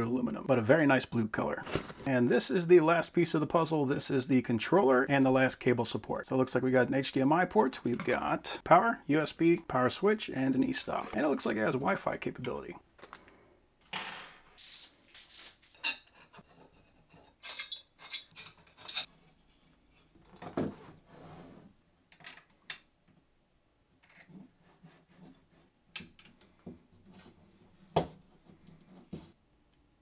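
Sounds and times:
metal parts clinking: 17.4s - 19.1s.

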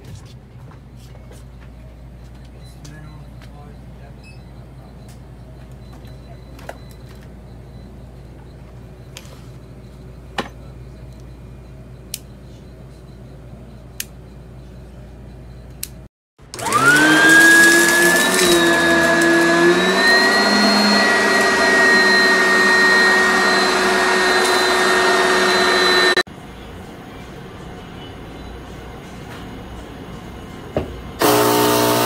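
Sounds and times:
vacuum cleaner motor whining: 16.4s - 26.2s, 31.2s - 32.0s.

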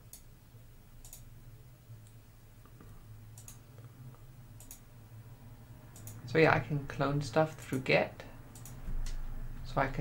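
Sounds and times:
computer mouse clicks: 0.0s - 0.3s, 1.0s - 1.3s, 2.0s - 4.9s, 6.0s - 6.2s, 8.5s - 9.2s
low steady hum: 0.0s - 10.0s.

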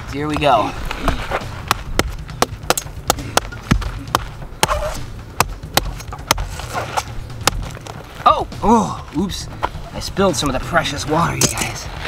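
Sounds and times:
machete chopping coconut: 1.0s - 7.8s.

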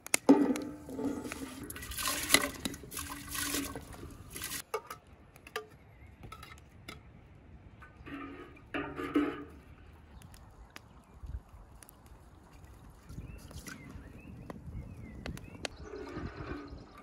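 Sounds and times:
rice scraped into metal pot: 0.3s - 4.6s
metal skimmer clinking enamel bowl: 0.3s - 5.0s.

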